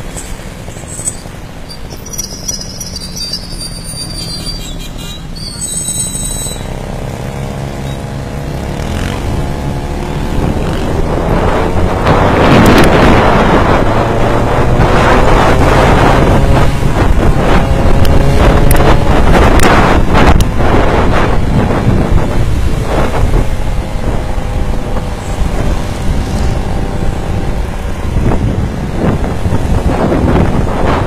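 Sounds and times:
wind rushing over microphone: 6.2 - 31.0.

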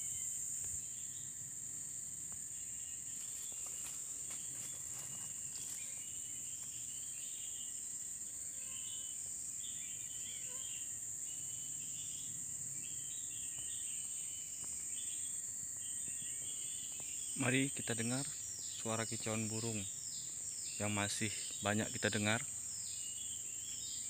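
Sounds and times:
birds chirping: 0.0 - 24.0
forest insects droning: 0.0 - 24.0.

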